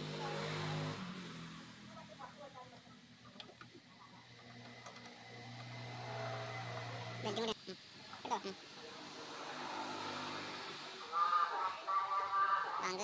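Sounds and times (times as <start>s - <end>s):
low mechanical hum: 2.2s - 8.7s.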